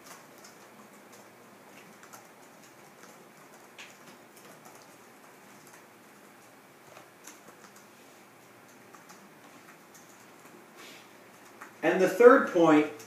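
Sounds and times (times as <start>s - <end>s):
faint steady hiss: 0.0s - 13.0s
light clicks and taps: 11.3s - 11.8s.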